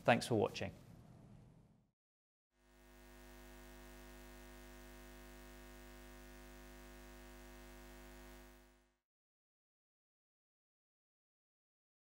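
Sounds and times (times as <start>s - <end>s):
neon sign buzz: 2.6s - 9.0s.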